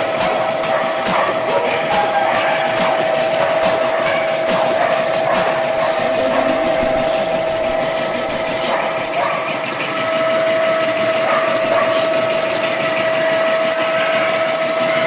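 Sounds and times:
constant tone: 0.0s - 11.7s
milling cutter cutting metal: 1.7s - 15.0s.

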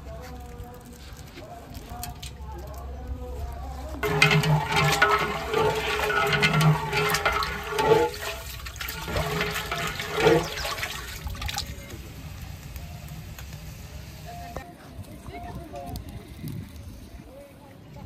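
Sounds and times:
metal ladle stirring: 4.0s - 11.7s
water sloshing in a metal pot: 4.0s - 11.9s.

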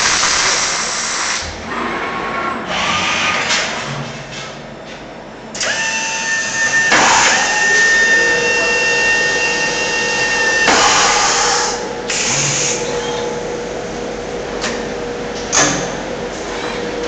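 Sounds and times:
steady motor whine: 5.6s - 17.0s.

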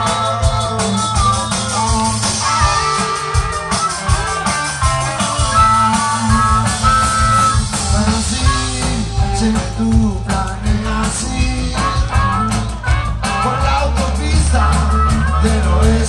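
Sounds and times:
singer: 0.0s - 3.1s, 7.7s - 16.0s
bass: 0.0s - 16.0s
drums: 0.0s - 16.0s
electric guitars: 0.0s - 16.0s.

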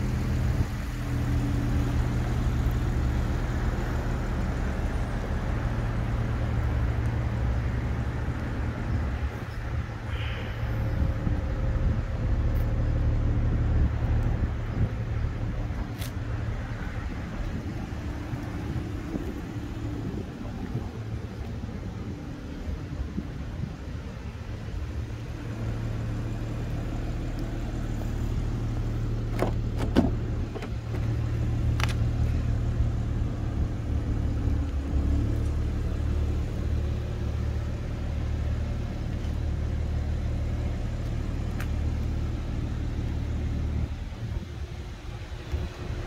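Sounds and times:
car engine idling: 0.0s - 46.0s
car door clicks and clunk: 29.2s - 32.0s.

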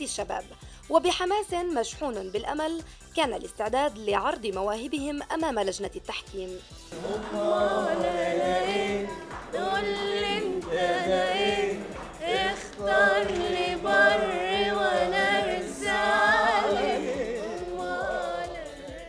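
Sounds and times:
people singing unaccompanied: 6.9s - 19.0s.

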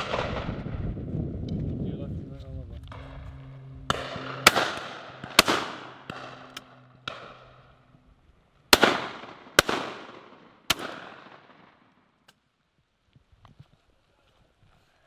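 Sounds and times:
shotgun shots with echo: 0.0s - 0.6s, 3.8s - 7.6s, 8.7s - 11.8s
distant fainter gunshots: 0.0s - 0.7s, 2.9s - 8.0s, 8.7s - 12.1s.

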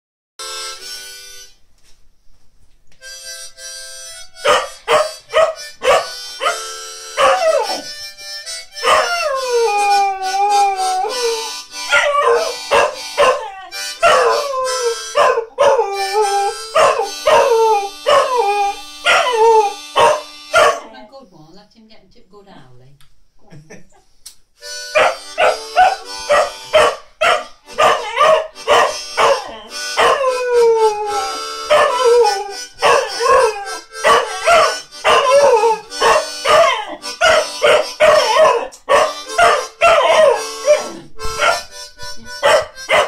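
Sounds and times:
harmonica held notes: 0.4s - 2.0s, 2.9s - 21.1s, 24.6s - 43.0s
dog howling: 7.2s - 7.9s, 8.8s - 20.8s, 25.0s - 41.6s, 42.4s - 43.0s.

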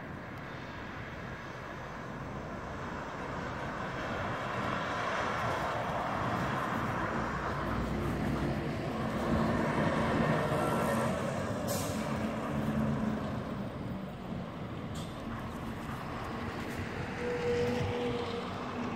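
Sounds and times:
bus engine passing: 0.0s - 18.9s
street traffic: 0.0s - 18.9s
short hiss: 11.6s - 12.1s.

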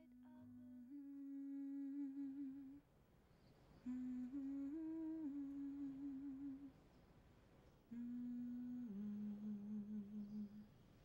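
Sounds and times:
person humming a slow melody: 0.0s - 2.9s, 3.8s - 6.8s, 7.9s - 10.8s.

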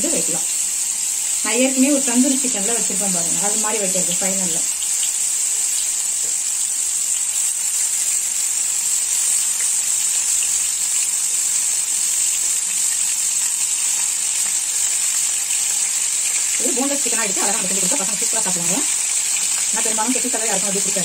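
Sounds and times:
chicken sizzling in hot oil: 0.0s - 21.0s.

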